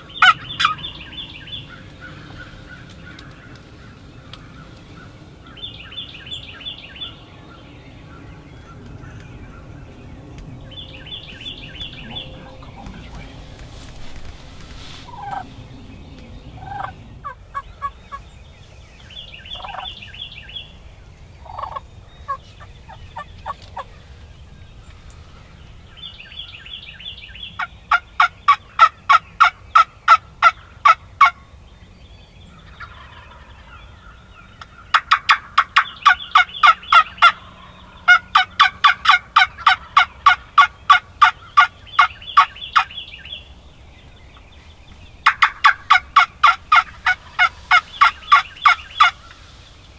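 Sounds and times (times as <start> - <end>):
wild turkey yelping: 0.1 - 5.6, 11.1 - 15.6, 16.6 - 18.3, 19.5 - 20.0, 21.4 - 23.9, 27.6 - 31.4, 32.6 - 33.8, 34.6 - 43.1, 45.2 - 49.5.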